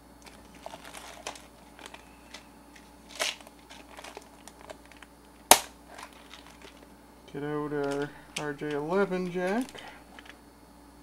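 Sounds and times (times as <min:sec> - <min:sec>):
plastic parts clicking: 0:00.2 - 0:02.4, 0:07.8 - 0:08.8, 0:09.4 - 0:10.4
plastic bag crinkling: 0:00.2 - 0:06.9, 0:07.8 - 0:10.4.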